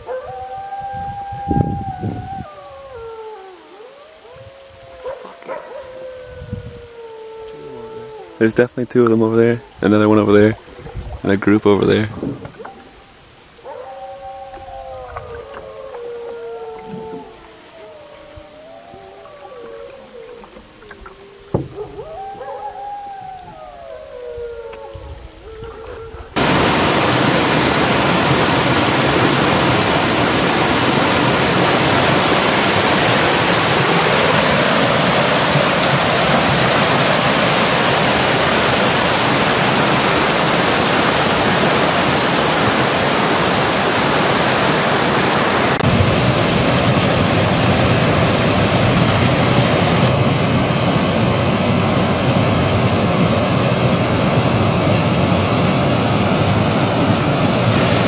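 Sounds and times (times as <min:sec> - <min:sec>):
wolves howling: 0:00.0 - 0:08.7, 0:12.5 - 0:50.5
river rapids rushing over rocks: 0:26.4 - 0:58.0.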